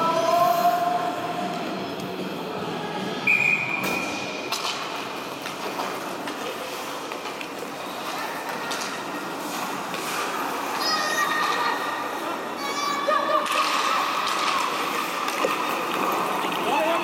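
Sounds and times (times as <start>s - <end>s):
hockey sticks and puck clacking: 3.8s - 12.2s, 13.3s - 17.0s
skates scraping on ice: 4.4s - 17.0s.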